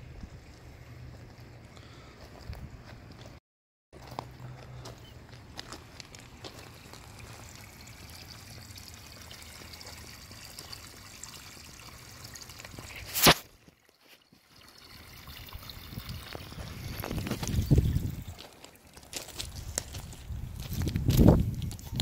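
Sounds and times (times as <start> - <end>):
liquid trickling: 6.0 - 20.2
rustle of handling or wind: 15.2 - 22.0.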